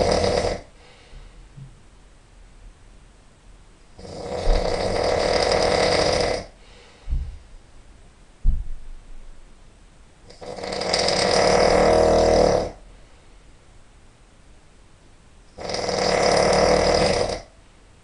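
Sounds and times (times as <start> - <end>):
man snoring: 0.0 - 0.8, 4.0 - 6.6, 10.3 - 12.8, 15.6 - 17.5.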